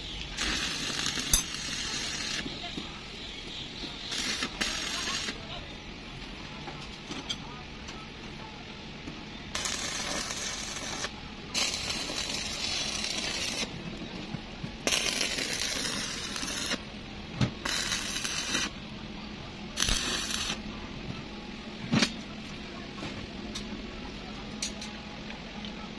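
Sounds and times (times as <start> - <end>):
arc welding crackling and sizzling: 0.0 - 5.8, 9.3 - 18.9, 19.8 - 20.7.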